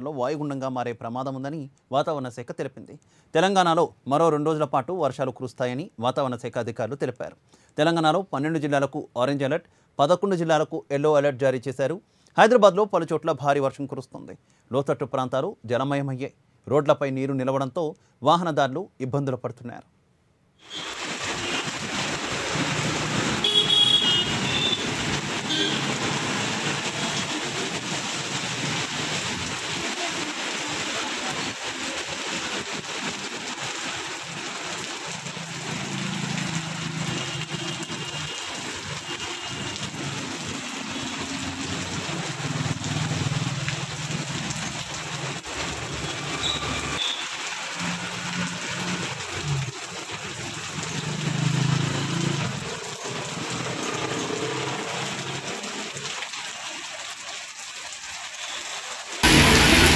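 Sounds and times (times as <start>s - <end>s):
rain on a wet road: 20.6s - 59.9s
vehicles passing: 22.2s - 28.0s, 35.5s - 37.9s, 51.0s - 55.5s, 59.2s - 59.9s.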